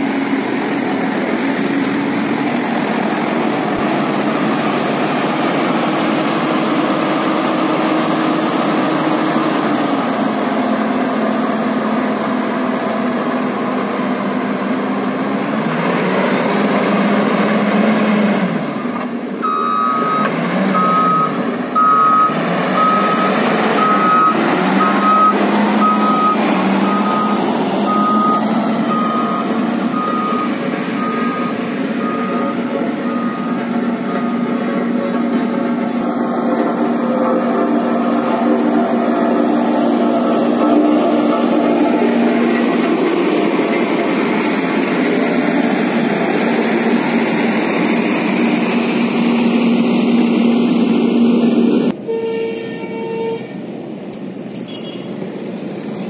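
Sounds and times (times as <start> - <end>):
diesel engine running: 0.0 - 56.0
reversing alarm beeping: 18.8 - 34.7.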